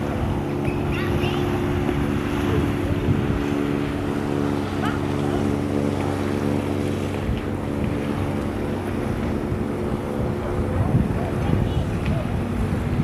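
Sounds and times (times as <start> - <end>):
low engine hum: 0.0 - 13.0
wind buffeting microphone: 0.0 - 13.0.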